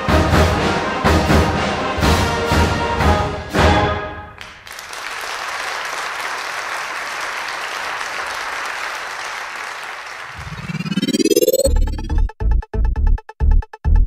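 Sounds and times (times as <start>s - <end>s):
crowd applause: 4.4s - 10.9s
rising synthesizer tone: 10.4s - 14.0s.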